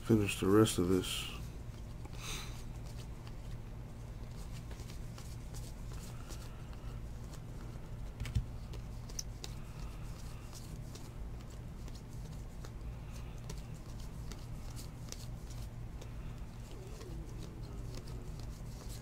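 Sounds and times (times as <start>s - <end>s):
trading cards flipped by hand: 4.2s - 19.0s
low hum: 12.7s - 19.0s.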